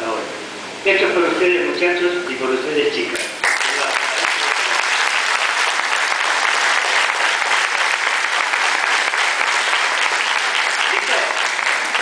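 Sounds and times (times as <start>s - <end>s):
audience applause: 3.4s - 12.0s.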